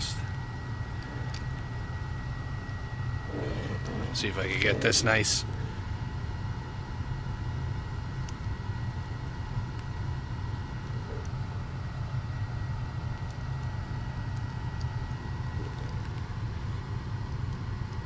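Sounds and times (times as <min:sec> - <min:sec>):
faint steady whine: 0:00.0 - 0:18.0
low background hum and rumble: 0:00.0 - 0:18.0.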